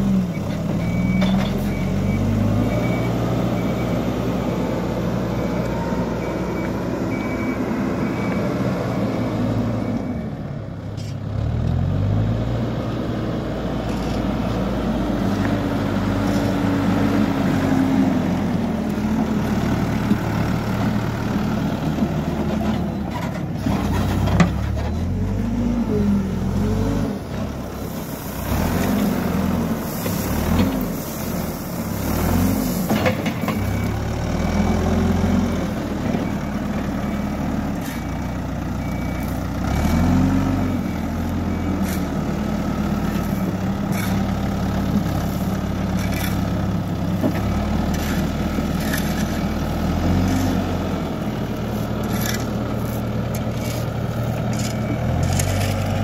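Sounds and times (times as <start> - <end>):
diesel engine revving: 0.0 - 10.6, 11.2 - 56.0
reversing alarm beeping: 0.2 - 10.5, 29.5 - 46.9, 51.7 - 55.9
gravel pouring: 27.6 - 34.0, 40.8 - 56.0.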